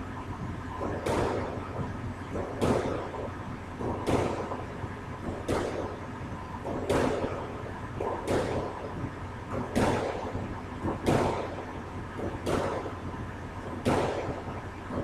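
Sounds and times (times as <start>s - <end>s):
squash ball hitting wall: 0.8s - 4.6s, 5.2s - 6.0s, 6.6s - 7.4s, 8.0s - 8.8s, 9.5s - 11.6s, 12.2s - 12.9s, 13.8s - 14.4s.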